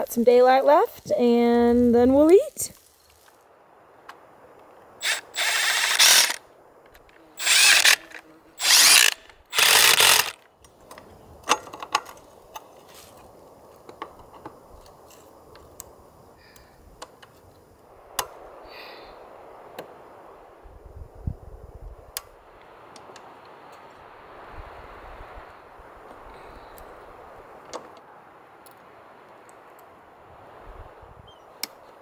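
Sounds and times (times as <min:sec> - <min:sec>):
ratchet wrench cranking: 0:05.0 - 0:06.4, 0:07.4 - 0:10.4.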